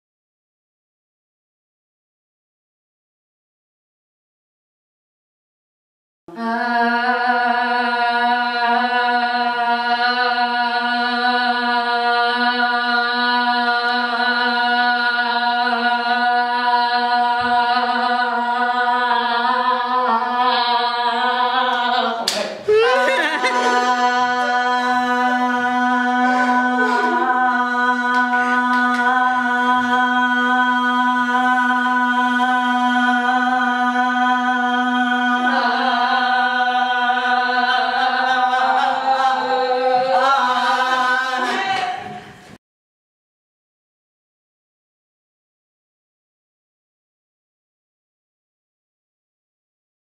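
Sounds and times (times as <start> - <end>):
women singing a held note: 6.3 - 42.6.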